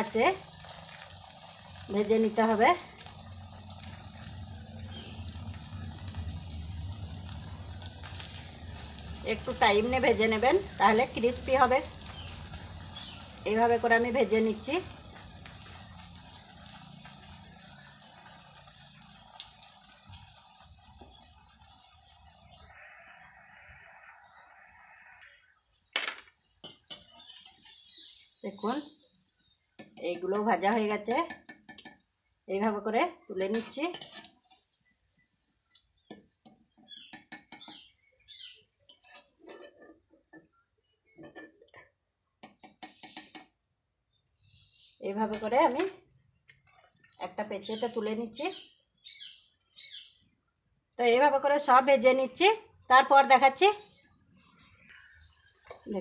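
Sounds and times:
food deep-frying in oil: 0:00.0 - 0:56.0
wire skimmer scraping a wok: 0:07.2 - 0:23.1, 0:33.4 - 0:34.7, 0:38.9 - 0:40.0.

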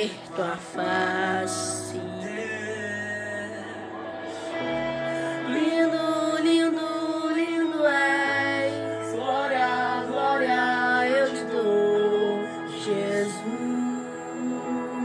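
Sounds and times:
person singing long notes: 0:00.0 - 0:15.0
sustained backing chords: 0:00.0 - 0:15.0.

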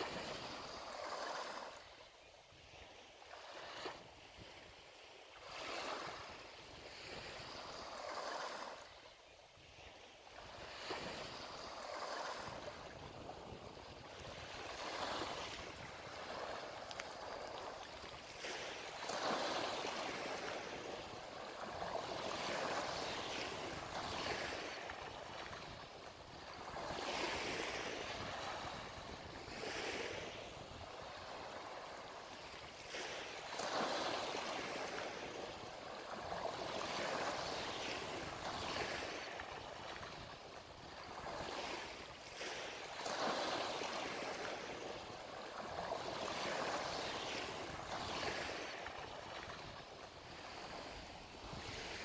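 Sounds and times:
sea waves breaking on shore: 0:00.0 - 0:52.0.

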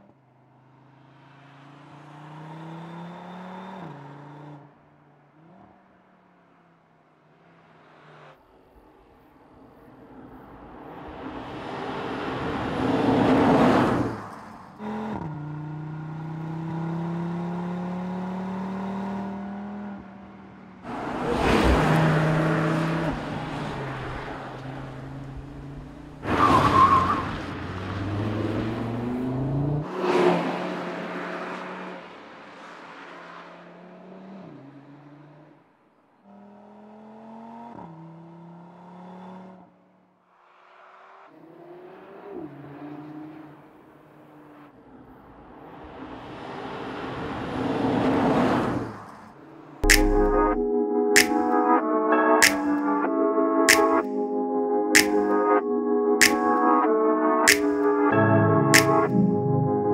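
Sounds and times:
car engine accelerating past: 0:00.6 - 0:04.7, 0:10.8 - 0:35.6.

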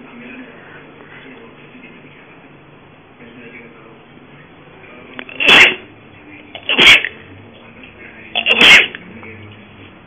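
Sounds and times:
cat hissing: 0:05.2 - 0:05.9, 0:06.5 - 0:07.2, 0:08.4 - 0:09.0.

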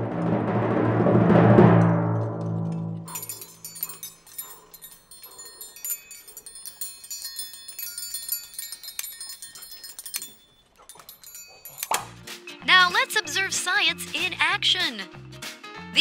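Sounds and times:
metal triangles ringing: 0:03.0 - 0:12.3.

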